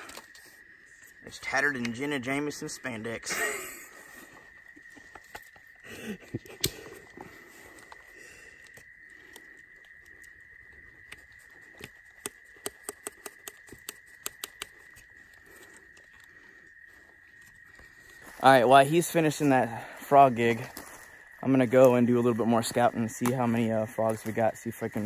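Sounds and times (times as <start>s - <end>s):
night insects droning: 0.0s - 25.0s
knife and sticks clicking and snapping: 6.4s - 7.2s, 11.0s - 16.3s.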